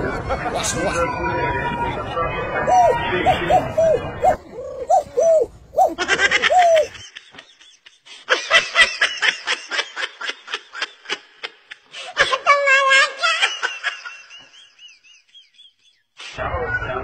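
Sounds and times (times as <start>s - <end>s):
short rising-and-falling calls: 2.7s - 6.9s
person laughing hard: 5.9s - 7.0s.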